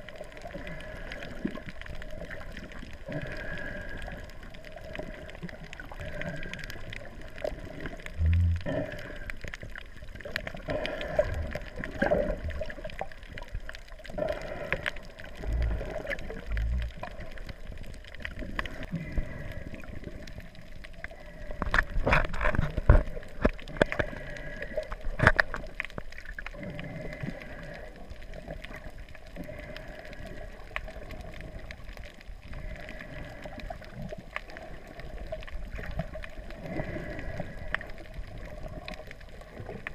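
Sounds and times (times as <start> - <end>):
muffled underwater water movement: 0.0 - 39.9
low underwater thumps: 8.2 - 8.7.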